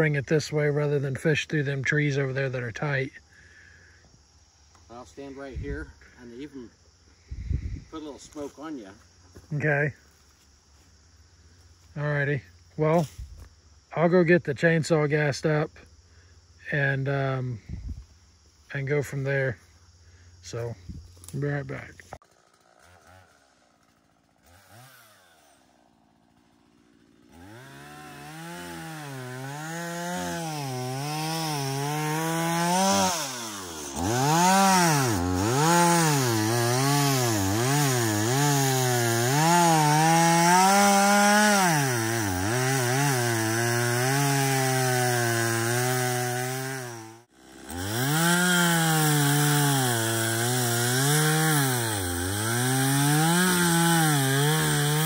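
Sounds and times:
chainsaw engine revving: 21.2 - 55.0.

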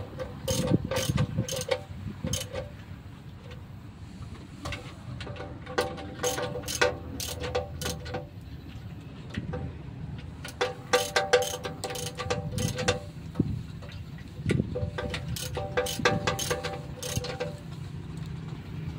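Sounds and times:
ratchet wrench clicking: 0.1 - 2.8, 5.8 - 8.3, 10.4 - 13.1, 14.8 - 17.6.

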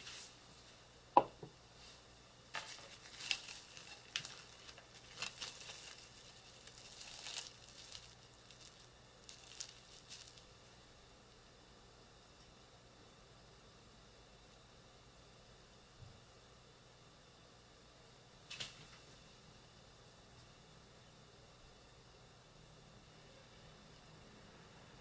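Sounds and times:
plastic cling wrap crinkling: 2.5 - 10.6.

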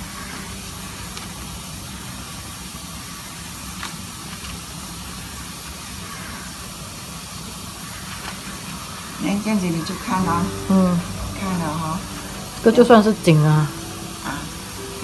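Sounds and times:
steady hiss with low hum: 0.0 - 15.0
dried leaves crinkling: 7.9 - 12.6.

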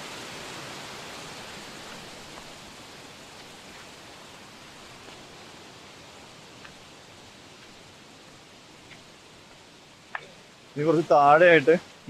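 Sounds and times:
waterfall rushing over rocks: 0.0 - 12.0.

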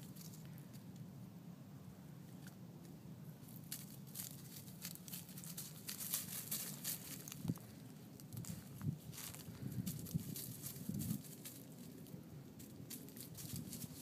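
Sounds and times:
footsteps crunching through dry grass: 3.4 - 14.0.

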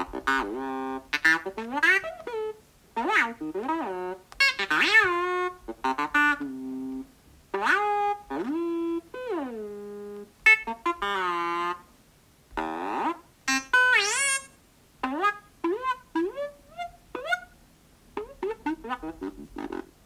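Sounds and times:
synthesizer droid chirps: 13.5 - 14.6.

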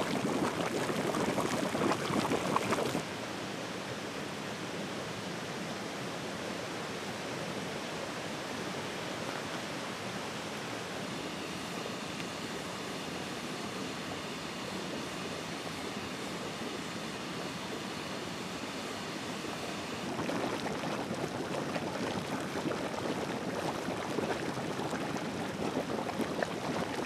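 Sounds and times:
water gushing over stones: 0.0 - 3.0, 20.0 - 27.0
hiss of flowing water: 0.0 - 3.2, 13.1 - 27.0.

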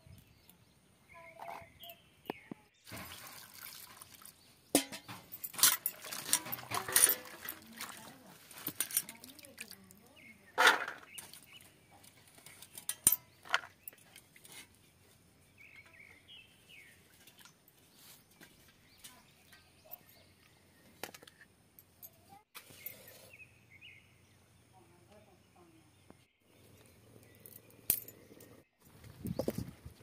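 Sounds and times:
birds chirping: 0.0 - 3.3, 4.2 - 21.0, 21.9 - 29.7
clinks and splashes in steel bowl: 2.9 - 10.0.

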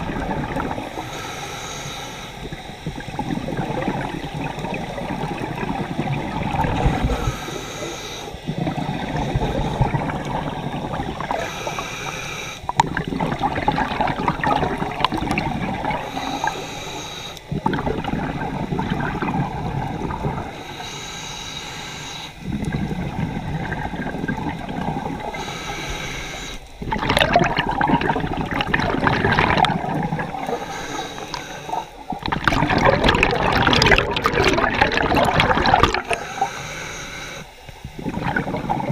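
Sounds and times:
exhaled bubbles gurgling: 0.0 - 20.9, 21.9 - 38.9
regulator inhale hiss: 0.7 - 3.1, 6.7 - 12.8, 15.8 - 17.6, 20.4 - 23.1, 25.0 - 26.8, 29.5 - 32.2, 35.9 - 38.6.

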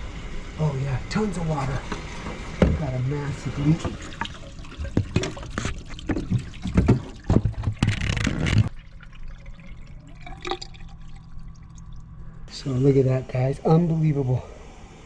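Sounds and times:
water splashing and dripping: 1.9 - 12.3.

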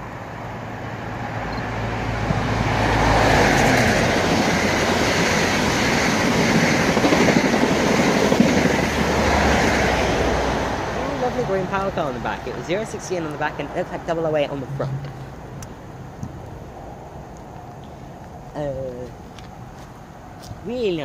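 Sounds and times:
diesel train engine rumble: 0.0 - 21.0
train wheels rushing on rails: 2.0 - 15.5.

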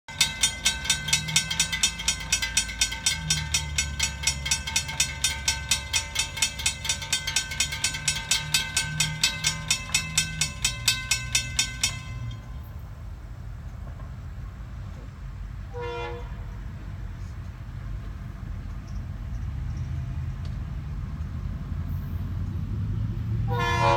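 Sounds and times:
crossing warning bell ringing: 0.1 - 13.9, 23.4 - 23.9
horn note: 23.5 - 23.9.

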